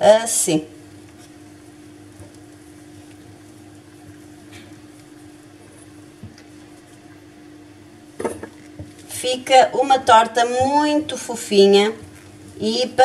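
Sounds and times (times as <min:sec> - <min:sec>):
low hum and soft hiss: 0:00.0 - 0:13.0.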